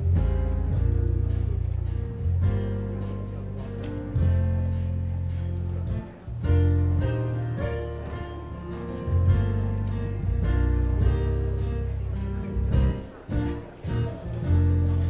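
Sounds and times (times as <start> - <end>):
heavy bass line: 0.0 - 15.0.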